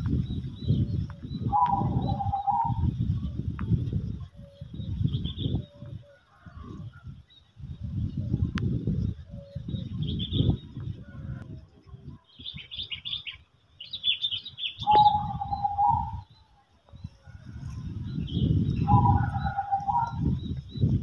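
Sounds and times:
long low bird call: 0.0s - 3.3s, 12.4s - 21.0s
birds chirping: 0.0s - 21.0s.

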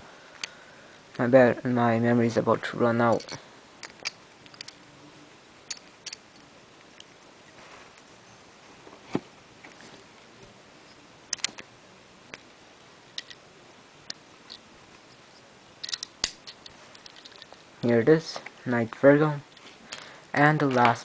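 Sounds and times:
small parts clicking together: 3.1s - 4.8s, 5.6s - 7.1s, 11.3s - 11.7s, 13.1s - 13.4s, 14.1s - 17.6s.

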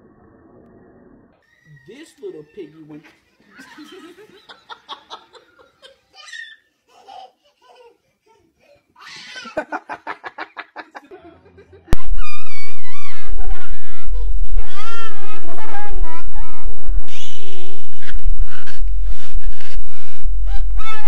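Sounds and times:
person laughing hard: 3.5s - 6.1s, 9.4s - 12.0s.

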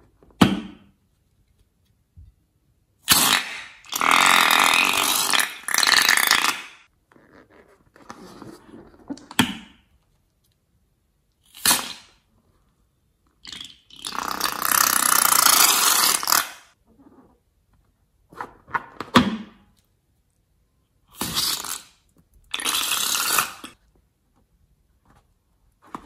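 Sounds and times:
liquid squirting from balloons: 21.2s - 23.8s.

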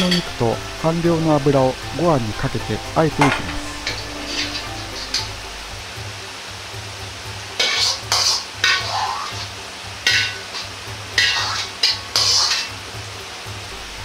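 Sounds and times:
oil sizzling: 0.0s - 14.0s
ladle scraping in a wok: 3.5s - 5.4s, 7.6s - 12.8s.

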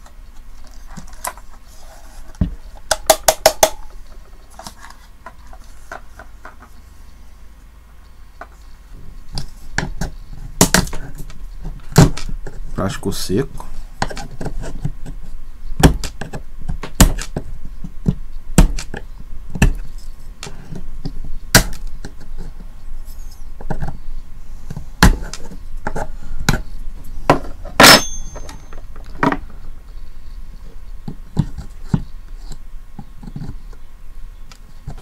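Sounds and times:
metallic clink: 27.8s - 28.8s.

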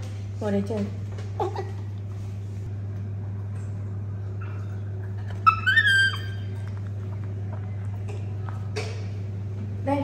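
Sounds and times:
steady low hum: 0.0s - 10.0s
baby macaque high-pitched call: 5.4s - 6.6s.

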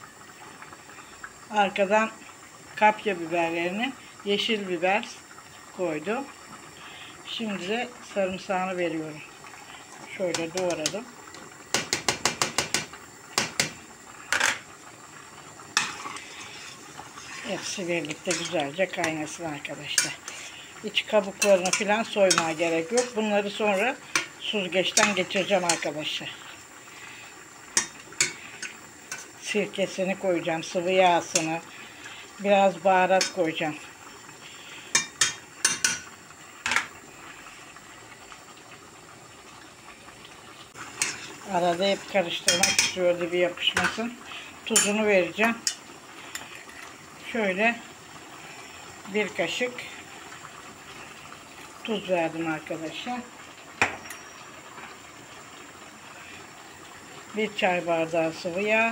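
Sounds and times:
sauce boiling hiss: 0.0s - 58.9s
kitchenware taps on pot: 11.7s - 13.8s, 35.0s - 36.0s, 42.5s - 43.0s
scrapes on pot: 15.8s - 17.5s.

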